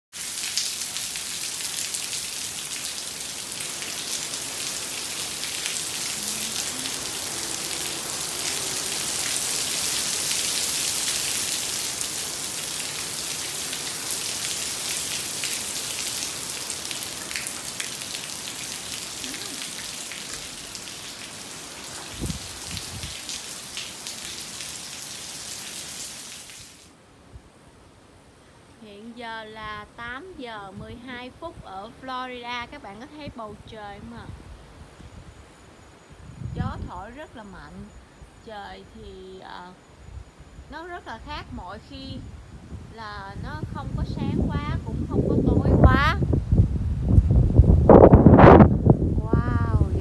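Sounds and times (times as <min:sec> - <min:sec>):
heavy rain pouring: 0:00.1 - 0:27.0, 0:42.6 - 0:50.0.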